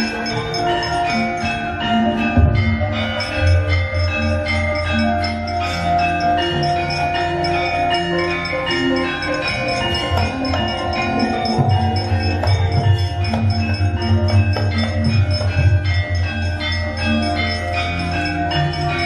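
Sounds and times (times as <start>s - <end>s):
gamelan metallophones and gongs: 0.0s - 19.0s.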